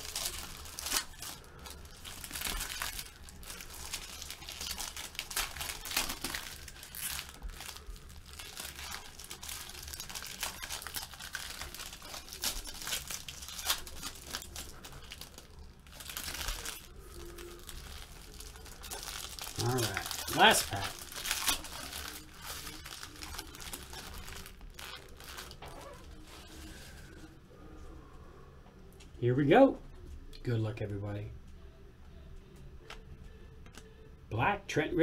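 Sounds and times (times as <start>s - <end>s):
card wrappers tearing and crinkling: 0.0s - 27.1s.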